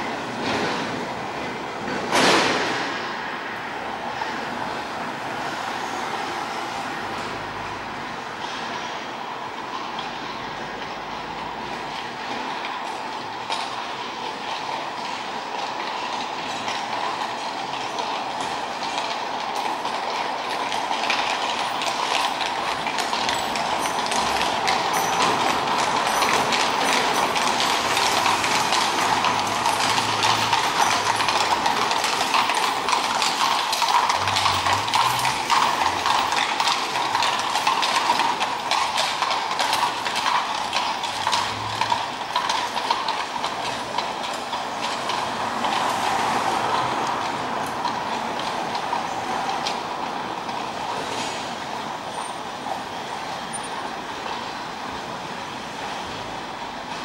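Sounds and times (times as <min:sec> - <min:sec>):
hooves clopping: 0:07.0 - 0:57.0
carriage wheels rattling: 0:12.3 - 0:49.8.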